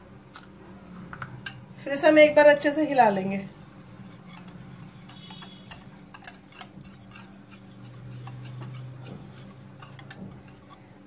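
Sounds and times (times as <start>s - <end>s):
whisk clicking against glass bowl: 3.5s - 10.8s.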